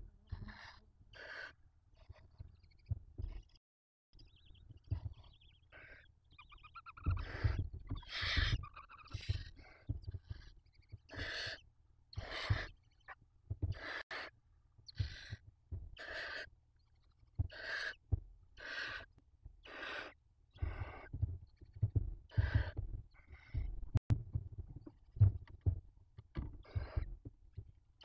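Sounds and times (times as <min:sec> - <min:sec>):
owl chicks hissing calls: 0:00.3 - 0:02.2, 0:05.0 - 0:11.6, 0:12.2 - 0:14.3, 0:14.9 - 0:16.5, 0:17.5 - 0:18.0, 0:18.6 - 0:21.2, 0:22.3 - 0:23.6, 0:26.6 - 0:27.1
low thumps in wooden nest box: 0:20.7 - 0:27.3.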